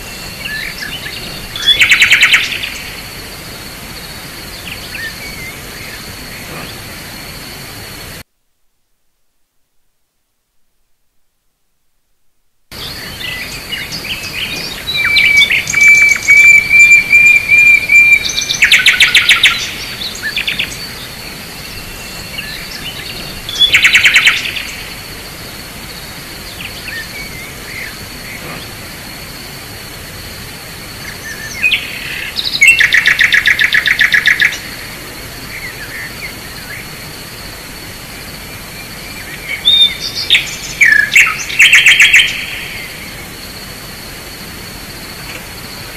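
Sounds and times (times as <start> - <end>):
songbirds trilling: 0.0 - 8.2, 12.7 - 45.9
steady high-pitched whine: 0.0 - 45.9.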